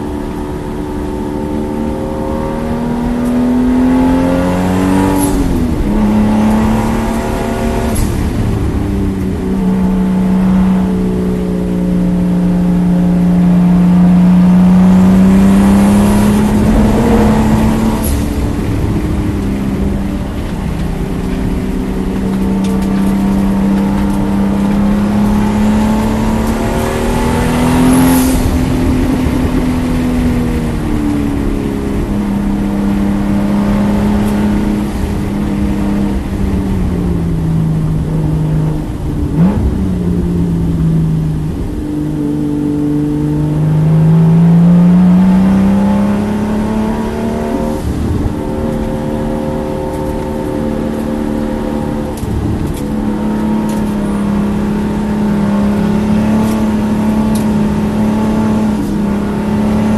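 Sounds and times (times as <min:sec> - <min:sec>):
car engine accelerating: 0:00.0 - 0:59.9
tyre and wind noise: 0:00.0 - 0:59.9.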